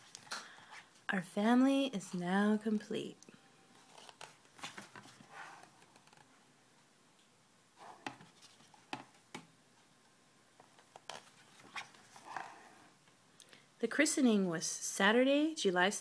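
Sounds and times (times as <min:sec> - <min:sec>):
photo book pages turning: 0:03.8 - 0:06.3, 0:10.6 - 0:12.6.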